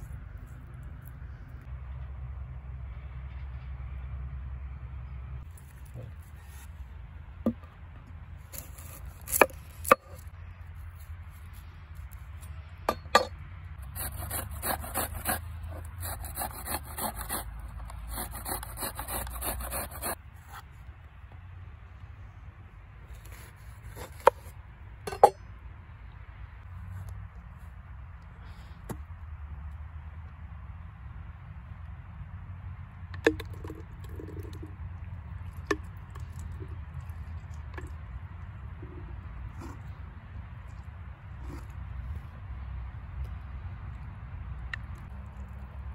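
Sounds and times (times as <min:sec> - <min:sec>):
onion rasping on box grater: 0:13.8 - 0:20.2.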